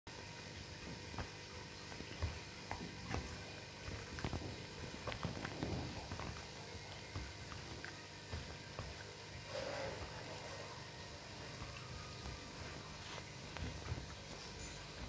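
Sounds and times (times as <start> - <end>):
fabric rustling: 12.2 - 15.0.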